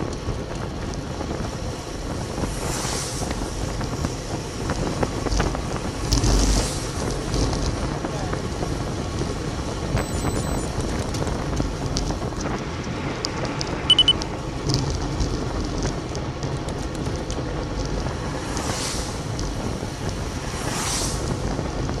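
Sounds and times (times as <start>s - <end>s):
wind buffeting microphone: 0.0s - 22.0s
cars swishing past on wet road: 2.5s - 3.6s, 5.9s - 7.6s, 17.9s - 22.0s
tyre hiss on wet road: 2.5s - 3.6s, 18.1s - 21.6s
short electronic beeps: 10.0s - 10.6s, 13.9s - 14.2s.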